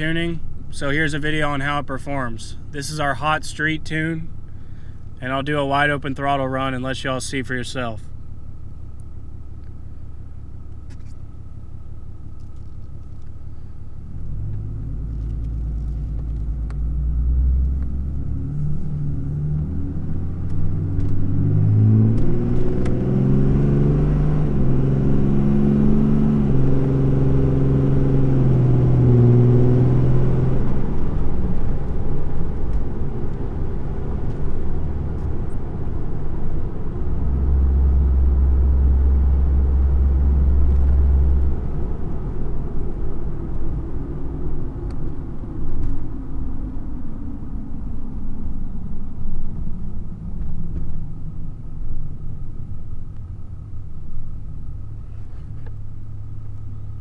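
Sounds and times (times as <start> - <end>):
diesel truck engine revving: 14.0 - 45.6.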